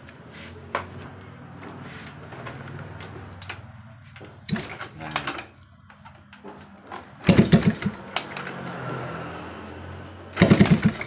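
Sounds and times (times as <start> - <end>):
two-stroke engine kick-started: 2.3 - 11.0.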